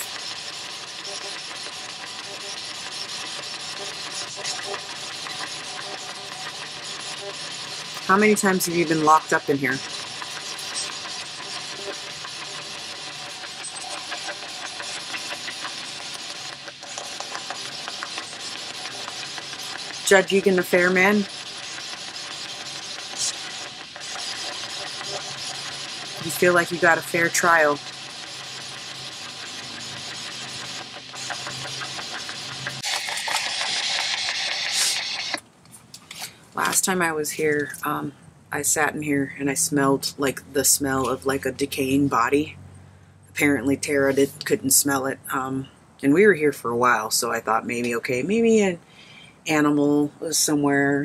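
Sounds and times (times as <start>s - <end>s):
radio static hiss: 0.0s - 35.4s.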